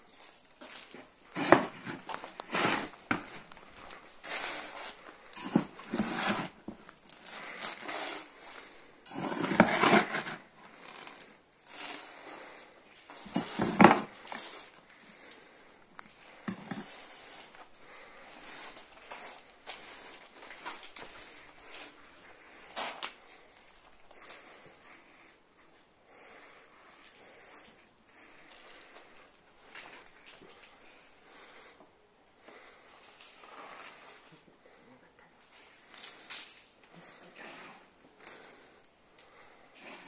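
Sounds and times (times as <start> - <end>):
soil pouring and scraping: 0.1 - 15.5.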